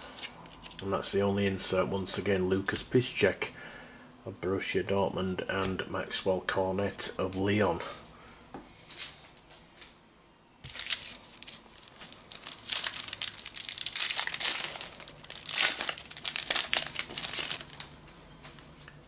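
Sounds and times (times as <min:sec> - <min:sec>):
wrapper tearing and crinkling: 0:10.6 - 0:18.0.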